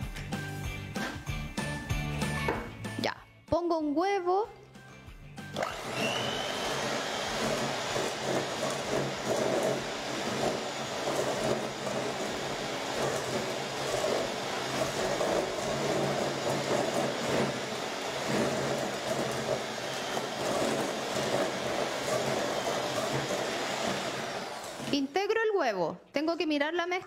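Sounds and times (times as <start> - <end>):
electric hand mixer running: 5.4 - 25.2.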